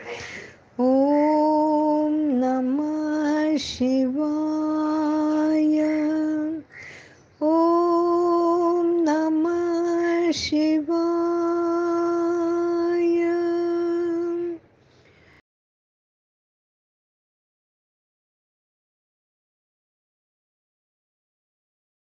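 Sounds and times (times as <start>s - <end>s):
woman breathing: 0.0s - 0.8s, 6.6s - 7.3s, 14.8s - 15.4s
woman singing a slow chant: 0.2s - 14.6s.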